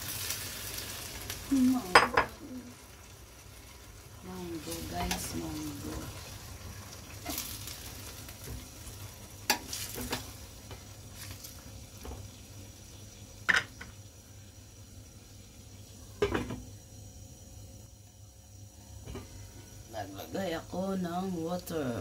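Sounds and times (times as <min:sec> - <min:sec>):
faint sizzle: 0:00.0 - 0:22.0
spatula stirring food in a pan: 0:03.2 - 0:13.9.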